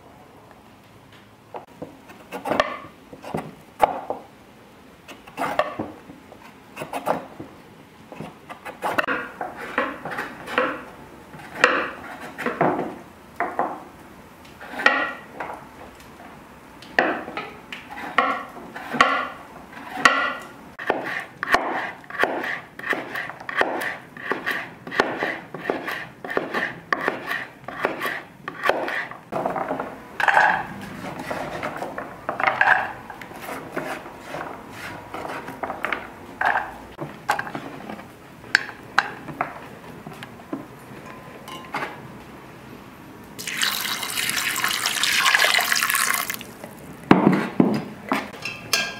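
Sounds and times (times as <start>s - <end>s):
knife chopping on wooden board: 20.0s - 29.0s.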